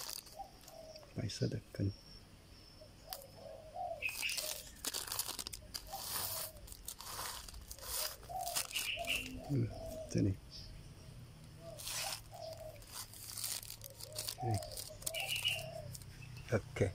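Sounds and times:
plastic bag of soil crinkling: 0.0s - 0.7s, 4.0s - 9.4s, 11.7s - 16.1s.

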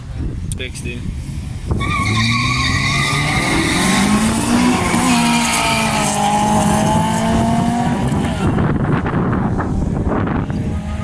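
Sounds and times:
car engine revving and accelerating: 2.0s - 8.9s.

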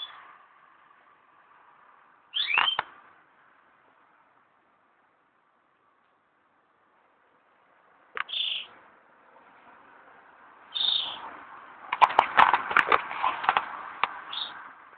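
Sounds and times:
short high bird calls: 2.3s - 2.9s, 8.2s - 8.8s, 10.7s - 11.2s.

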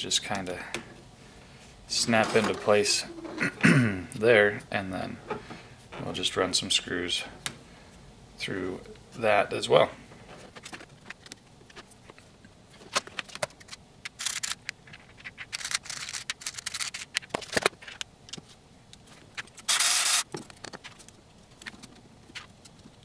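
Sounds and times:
plastic parts clicking: 13.1s - 18.1s
screws rattling in plastic box: 13.6s - 17.6s.

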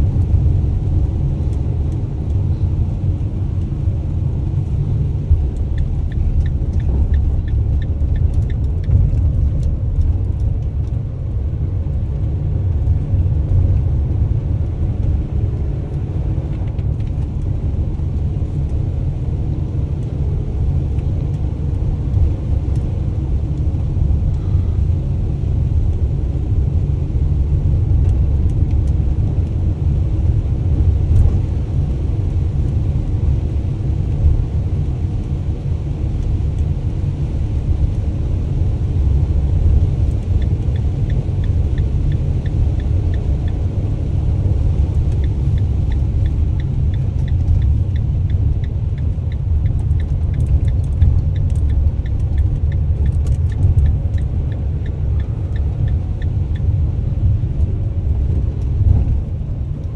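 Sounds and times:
van engine and road rumble: 0.0s - 59.9s
turn signal ticking: 4.8s - 12.3s, 39.1s - 59.2s.

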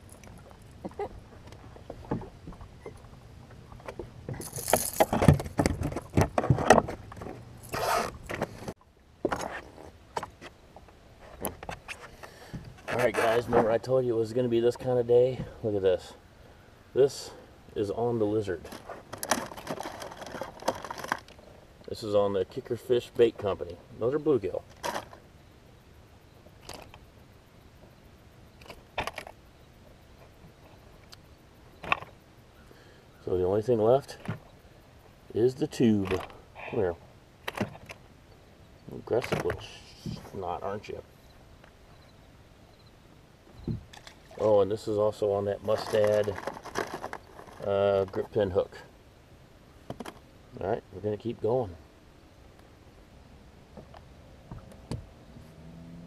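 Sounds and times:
handling clicks and rattles: 3.7s - 9.5s, 18.6s - 21.4s, 24.6s - 25.2s, 35.9s - 36.4s, 45.6s - 48.4s
clicks scrapes and rustles: 11.2s - 13.8s, 18.6s - 21.4s, 45.6s - 48.4s.

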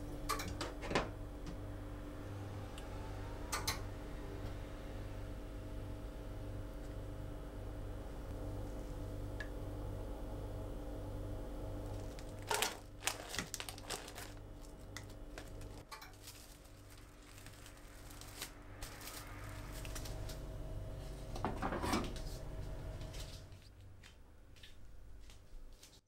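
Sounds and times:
steady low hum: 0.0s - 25.7s
plastic bag crinkling: 11.9s - 20.2s.

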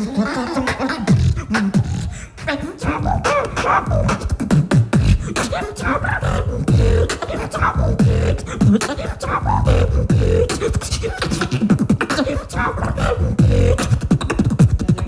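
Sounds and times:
person beatboxing into microphone: 0.0s - 15.0s.

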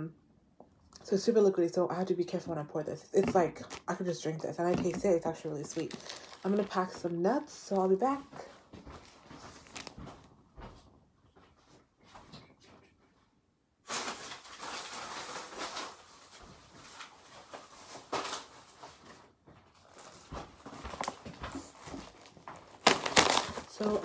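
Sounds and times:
kitchen handling rustling: 3.2s - 8.5s, 20.0s - 24.0s.

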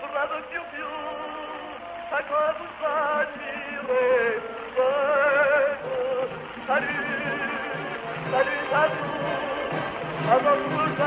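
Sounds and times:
light musical accompaniment: 0.0s - 11.0s
man singing with vibrato: 0.0s - 11.0s.

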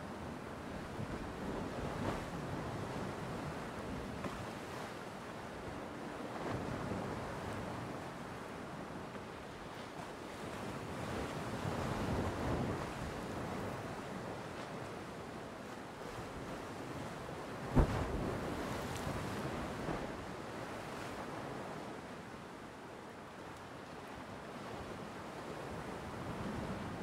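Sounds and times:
ocean surf breaking: 17.7s - 20.2s.

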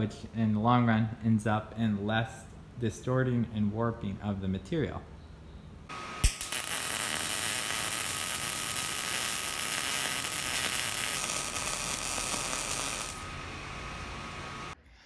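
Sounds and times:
thin steady whine: 5.9s - 14.8s
welding arc crackling sizzle: 5.9s - 14.8s.

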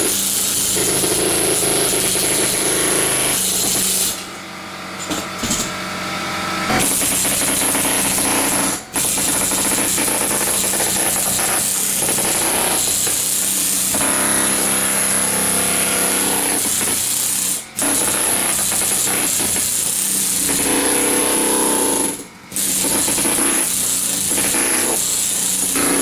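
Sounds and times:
power chisel hammering tile: 0.0s - 4.3s, 5.0s - 5.8s, 6.7s - 26.0s.

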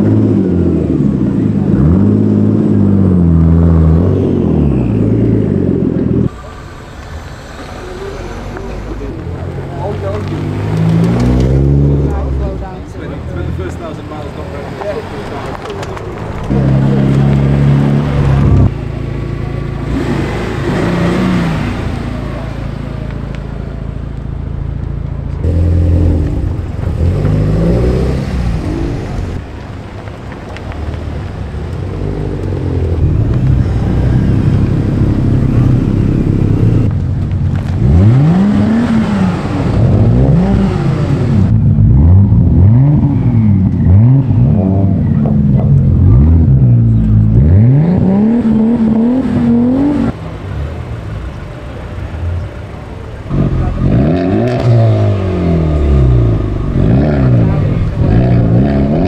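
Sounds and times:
car engine revving: 0.0s - 59.0s
car engines pulling away: 0.0s - 59.0s.

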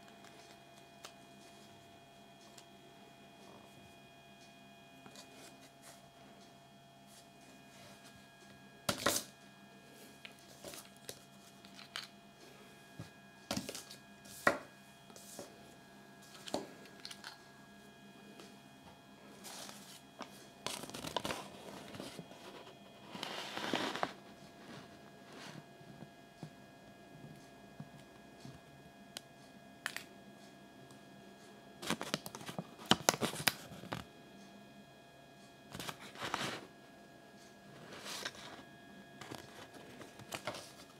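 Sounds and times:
faint steady hum: 0.0s - 40.9s
paper crinkling and rustling: 19.4s - 24.2s, 31.8s - 34.1s, 35.8s - 36.6s, 37.8s - 40.9s.

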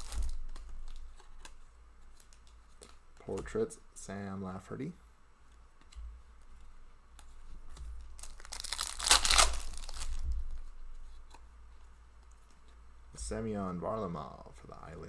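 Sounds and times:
plastic wrapper crinkling and tearing: 0.0s - 3.0s, 8.1s - 10.7s.

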